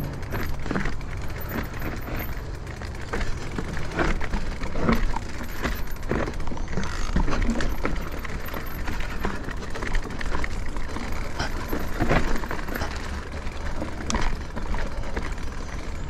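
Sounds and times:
bike knocking and rattling: 0.0 - 16.0
tyres rumbling on trail: 0.0 - 16.0.

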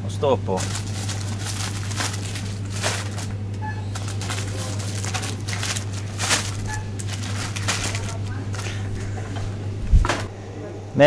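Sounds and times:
plastic packaging crinkling: 0.6 - 9.1
low hum: 0.6 - 11.0.

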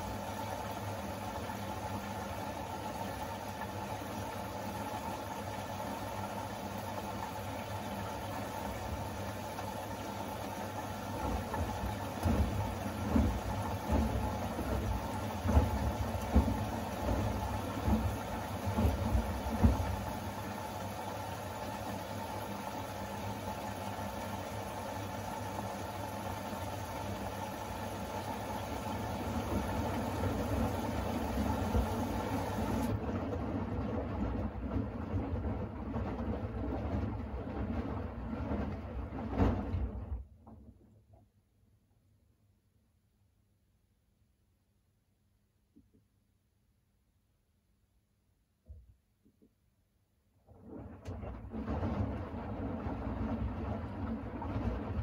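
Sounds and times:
washing machine motor hum: 0.0 - 41.2, 50.4 - 55.0
wet laundry thudding in drum: 11.2 - 20.2.

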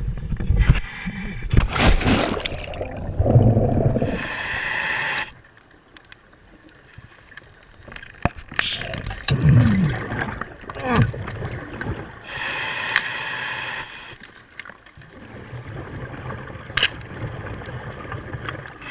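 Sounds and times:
water splashing and rushing: 1.5 - 4.2
regulator breath hiss: 4.0 - 5.4, 12.3 - 14.2.

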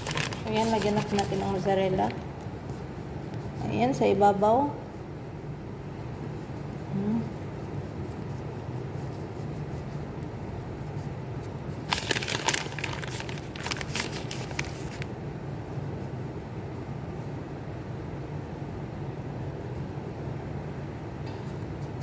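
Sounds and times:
plastic bag crinkling: 0.0 - 2.2, 11.8 - 15.1
steady low hum: 0.0 - 22.0.

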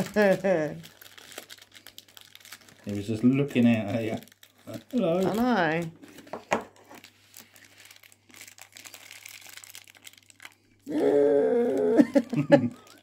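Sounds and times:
plastic packaging crinkling: 0.0 - 10.8, 12.0 - 13.0
person making drawn-out pitched sound: 10.9 - 12.3.

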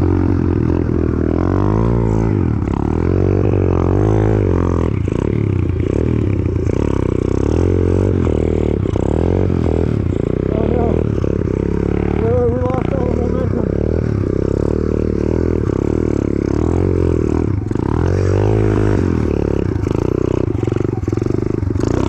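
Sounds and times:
pit bike engine revving: 0.0 - 22.0.

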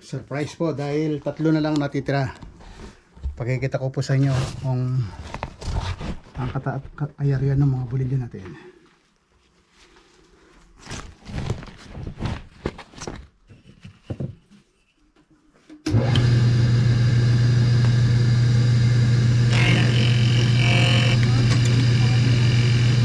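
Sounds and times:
woodworking machine motor humming: 15.9 - 23.0.

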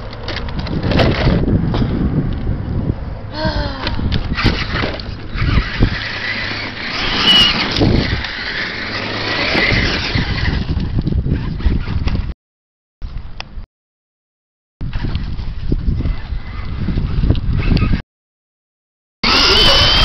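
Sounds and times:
electric motors whining: 4.2 - 11.8, 19.2 - 20.0
tyres crunching gravel: 4.6 - 10.8.

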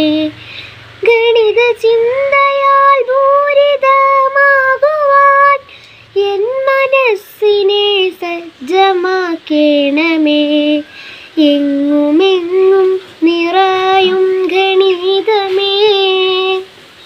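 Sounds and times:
girl singing solo: 0.0 - 16.8.

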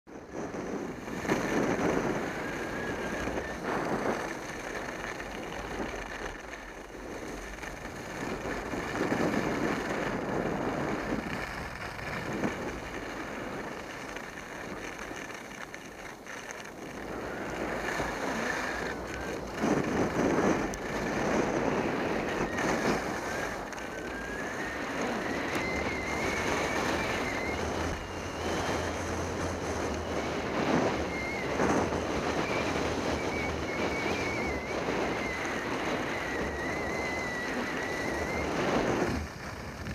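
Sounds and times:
skis scraping over snow: 0.1 - 39.9
wind rushing over microphone: 0.1 - 39.9
thin wavering whistle: 21.8 - 38.9.

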